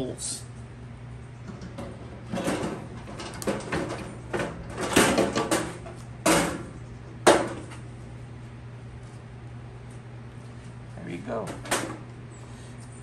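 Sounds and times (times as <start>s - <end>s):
metal griddle clattering and scraping: 1.5s - 7.8s.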